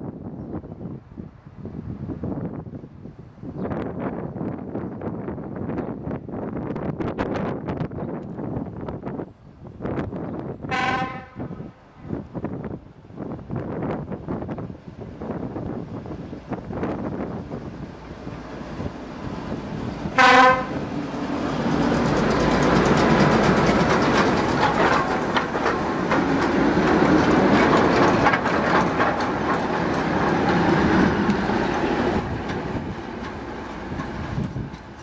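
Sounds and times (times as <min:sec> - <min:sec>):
train rumbling past: 0:08.2 - 0:35.0
locomotive horn blast: 0:10.7 - 0:11.7, 0:20.2 - 0:20.8
wheels clacking over rail joints: 0:16.1 - 0:35.0.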